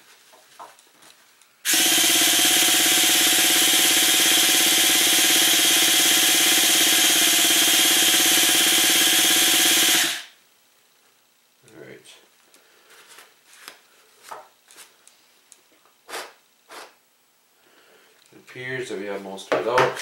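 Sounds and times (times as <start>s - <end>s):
small electric motor humming: 1.7s - 10.3s.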